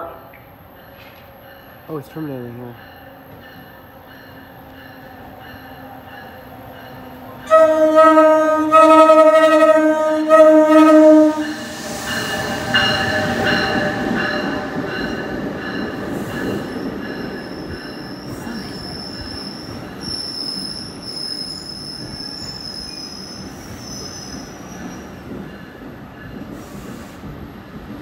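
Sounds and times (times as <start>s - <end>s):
train rumbling past: 0.0s - 28.0s
high steady brake squeal: 17.7s - 25.1s.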